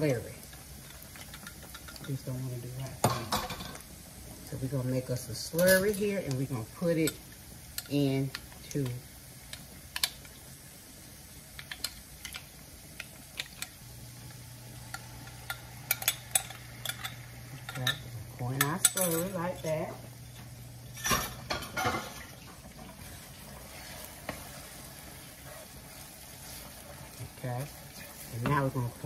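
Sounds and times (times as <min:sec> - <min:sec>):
skillet sizzling: 0:00.0 - 0:29.0
wooden spoon stirring in pan: 0:11.3 - 0:29.0.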